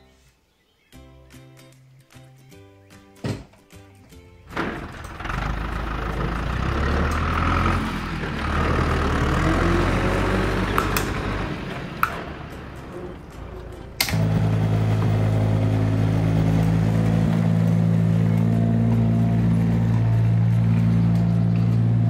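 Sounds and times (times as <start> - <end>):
tractor engine running: 4.3 - 22.0
sharp clicks: 10.6 - 12.3, 13.3 - 14.4.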